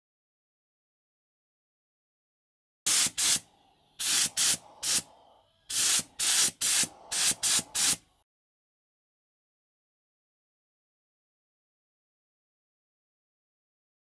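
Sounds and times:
spray paint hissing: 2.9 - 8.0.

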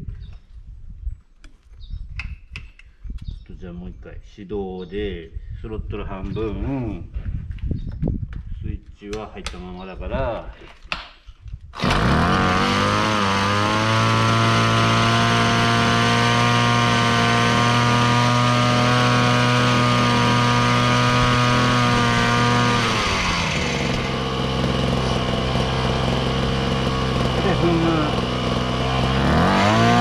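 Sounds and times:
small engine running: 11.8 - 30.0.

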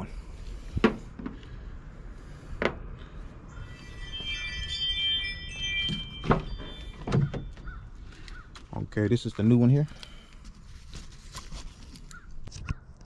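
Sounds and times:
multi-tone warning chime: 3.5 - 7.7.

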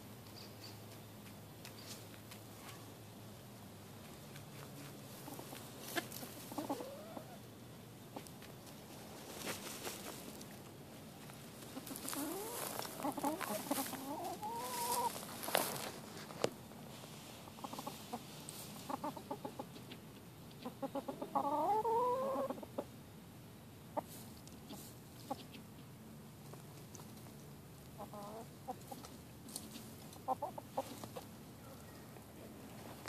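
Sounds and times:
hens clucking: 4.3 - 7.5, 11.2 - 16.0, 17.4 - 23.0, 24.0 - 25.9, 27.9 - 32.2.

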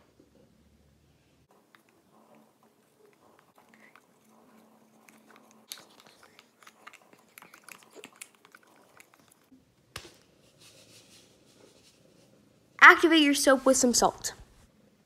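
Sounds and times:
spoon stirring soapy water: 1.6 - 9.5.

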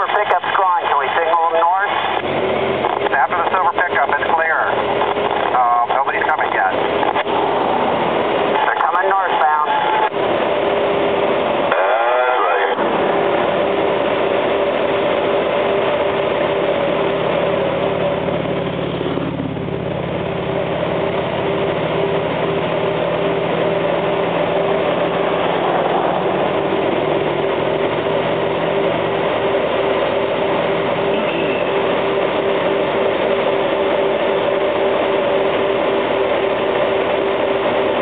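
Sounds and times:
rapidly pulsing tone: 1.1 - 38.0
motorcycle engine running: 12.8 - 38.0.

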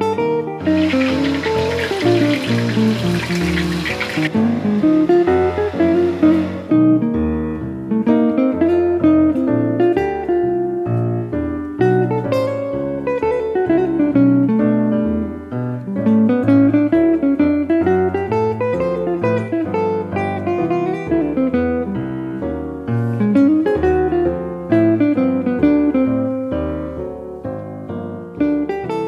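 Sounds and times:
plucked guitar melody: 0.0 - 29.0.

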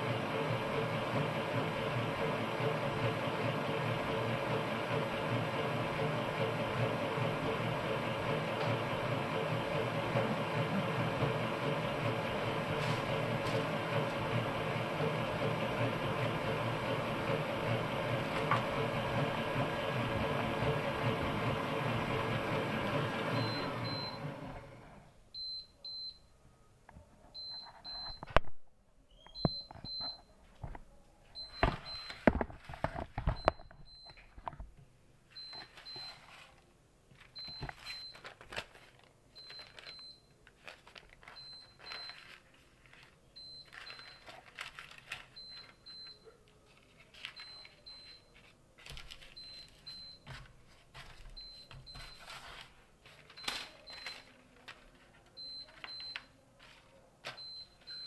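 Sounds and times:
stand mixer running: 0.0 - 25.0
paper rustling: 12.5 - 14.2, 31.7 - 33.4, 35.6 - 45.8, 46.5 - 57.9.

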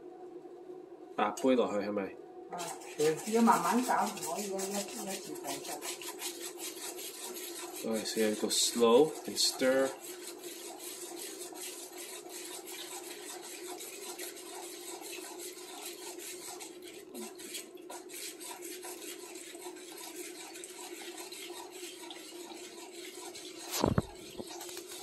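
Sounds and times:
steady low hum: 0.0 - 18.0
spoon scraping in saucepan: 2.6 - 25.0.

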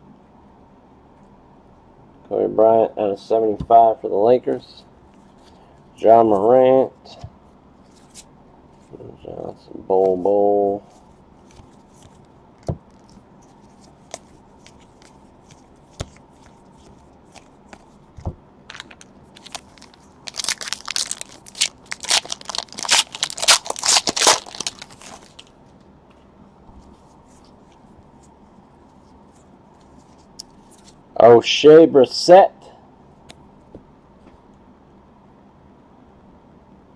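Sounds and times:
foil wrapper tearing and crinkling: 18.7 - 25.5.

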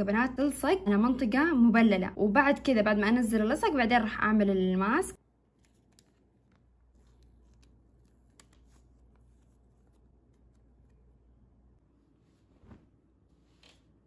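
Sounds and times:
foil packet crinkling: 5.5 - 11.3.

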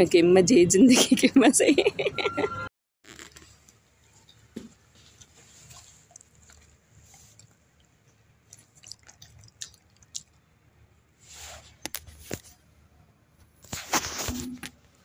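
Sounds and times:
dog licking lips: 5.6 - 10.4.

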